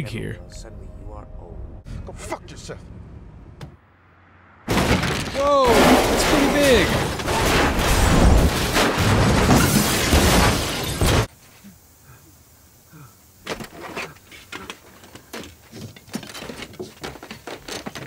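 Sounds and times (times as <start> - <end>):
car crash metal crunching: 4.7 - 11.3
debris settling crackles: 4.7 - 11.3.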